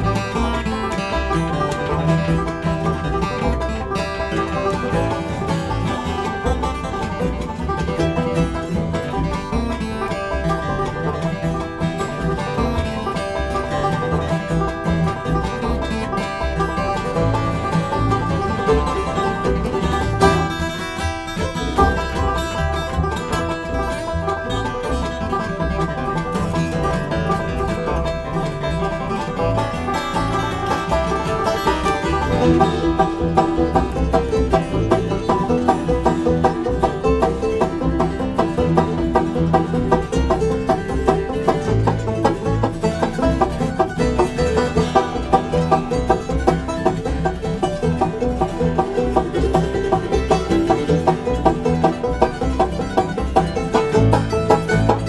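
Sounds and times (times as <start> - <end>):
acoustic guitar: 0.0 - 55.0
banjo picking: 0.0 - 55.0
bluegrass band playing: 0.0 - 55.0
mandolin: 0.0 - 55.0
upright bass: 0.0 - 55.0.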